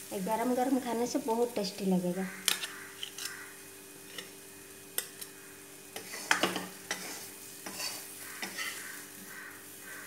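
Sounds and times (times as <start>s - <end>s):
frying sizzle: 0.0s - 10.0s
spatula scraping a metal pan: 6.0s - 9.2s.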